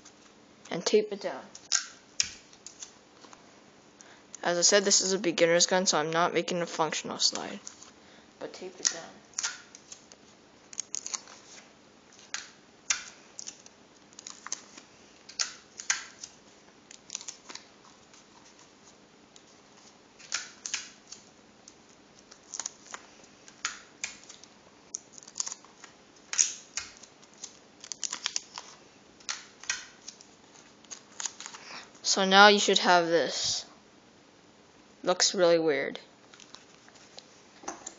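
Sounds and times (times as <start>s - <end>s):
tape and paper crackling: 1.5s - 3.4s, 7.1s - 8.0s, 8.6s - 31.8s, 36.3s - 37.9s.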